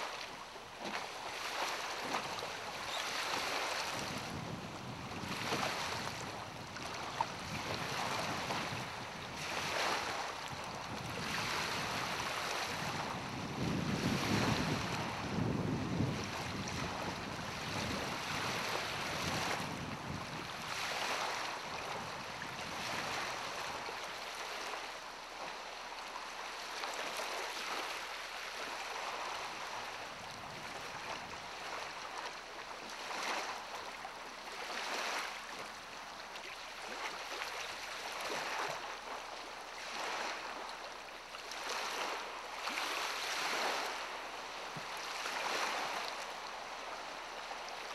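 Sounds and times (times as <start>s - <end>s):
lake waves lapping: 0.0s - 47.9s
wind gusting on microphone: 2.9s - 23.4s.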